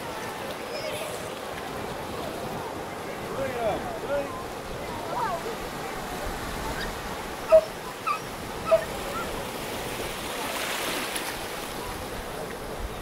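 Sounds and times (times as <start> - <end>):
small waves washing in: 0.0 - 13.0.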